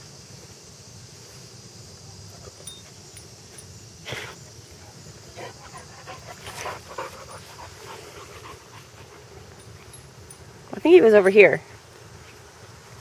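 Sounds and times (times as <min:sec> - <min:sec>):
dog panting and huffing: 0:05.3 - 0:10.0.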